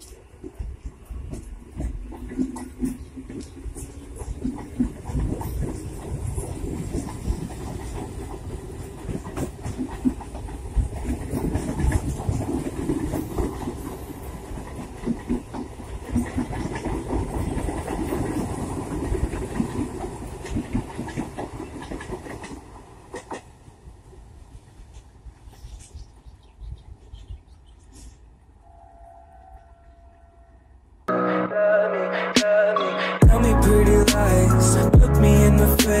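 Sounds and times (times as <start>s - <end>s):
train wheels clattering over rail joints: 0.0s - 23.6s
train running noise: 0.0s - 30.1s.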